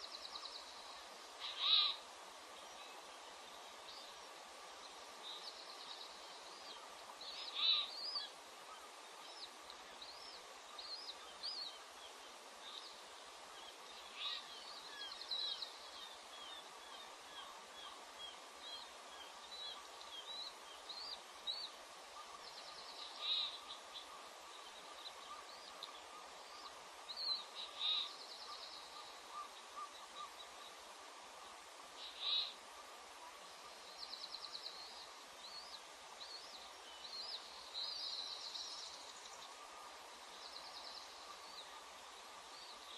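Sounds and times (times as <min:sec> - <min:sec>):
bird chirps and trills: 0:01.4 - 0:02.0.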